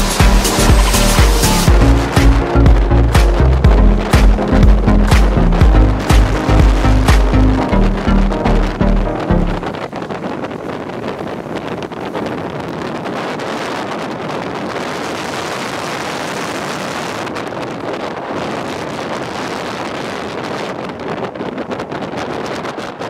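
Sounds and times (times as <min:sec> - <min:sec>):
wind buffeting microphone: 0:00.0 - 0:23.0
longboard wheels rolling on asphalt: 0:09.6 - 0:23.0.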